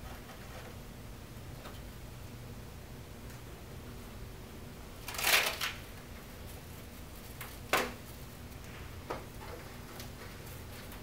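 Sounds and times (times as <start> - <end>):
scraping and snapping handling noises: 5.0 - 5.8.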